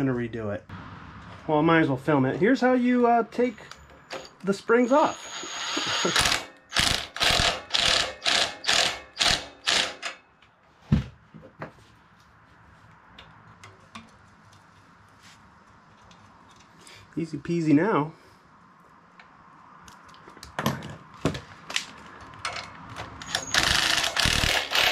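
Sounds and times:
power driver bursts: 0:05.2 - 0:10.0, 0:23.2 - 0:24.9.

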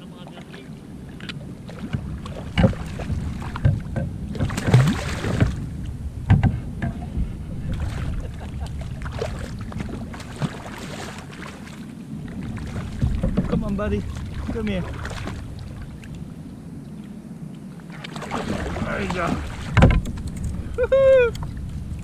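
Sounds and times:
steady low rumble: 0:00.0 - 0:22.0
water splashing around a kayak: 0:00.0 - 0:22.0
knocks and clicks: 0:06.3 - 0:07.2, 0:19.8 - 0:20.6.

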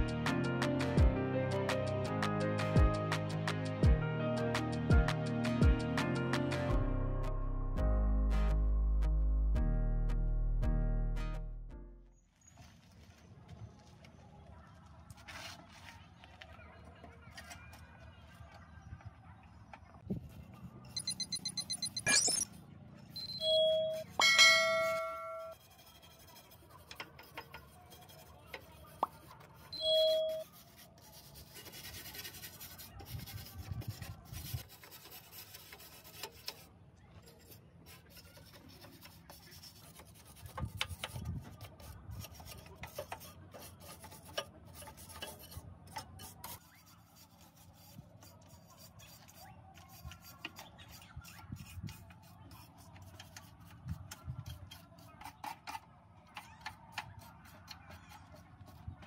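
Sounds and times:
scraping and rubbing of hand work: 0:15.1 - 0:16.2, 0:23.4 - 0:59.0
short electronic chime: 0:21.0 - 0:22.4.

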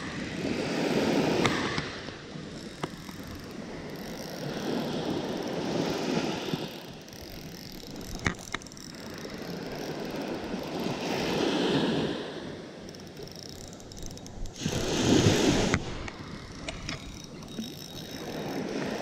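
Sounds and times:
small waves washing ashore: 0:00.0 - 0:19.0
sharp clicks: 0:06.6 - 0:11.0, 0:12.8 - 0:14.9, 0:15.6 - 0:19.0.

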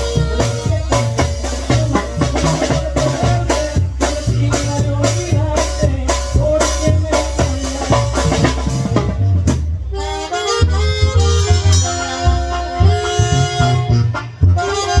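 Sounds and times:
saxophones playing: 0:00.0 - 0:03.8, 0:07.5 - 0:15.0
bass drum and cymbal beat: 0:00.0 - 0:15.0.

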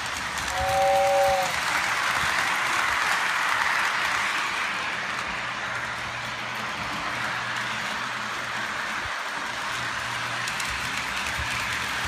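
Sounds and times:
model train hissing: 0:00.1 - 0:05.0
two-note train horn: 0:00.5 - 0:01.6.

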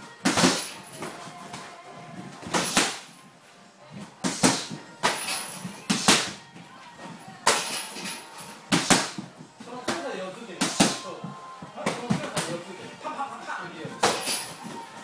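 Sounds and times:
padded gloves thudding: 0:00.2 - 0:03.3, 0:03.9 - 0:12.7.

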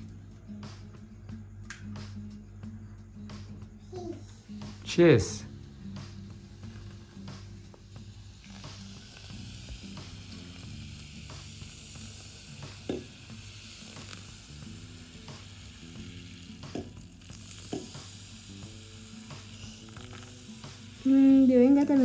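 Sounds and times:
carbonated drink fizzing: 0:07.8 - 0:22.0.

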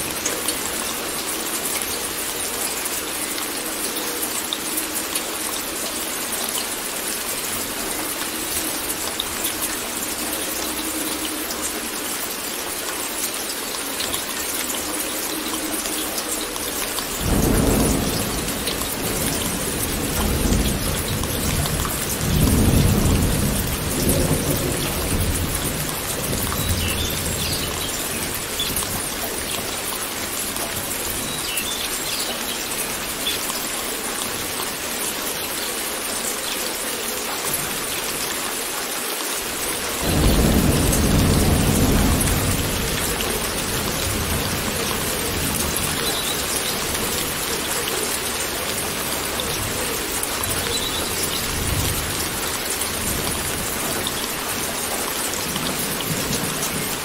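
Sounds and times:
steady rain: 0:00.0 - 0:57.0
thunder rumble: 0:17.2 - 0:29.1, 0:40.0 - 0:47.4.

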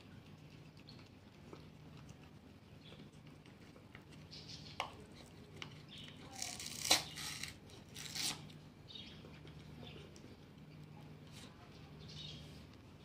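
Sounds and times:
cat lapping milk: 0:00.0 - 0:06.1.

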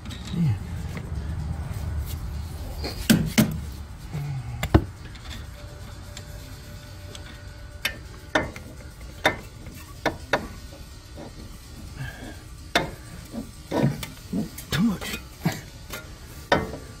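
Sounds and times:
hand tools clinking on metal: 0:07.2 - 0:17.0.

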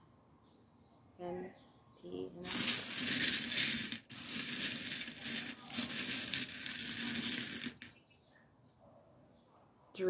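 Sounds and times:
metal charms jingling in glass dish: 0:02.4 - 0:08.0.

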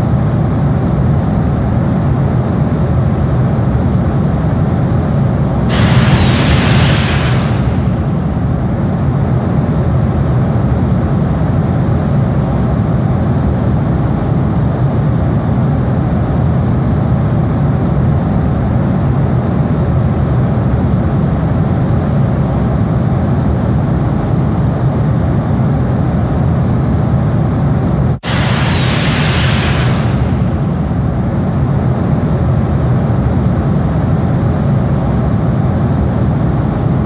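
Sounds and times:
jet engines roaring: 0:05.6 - 0:09.0, 0:28.2 - 0:31.8.

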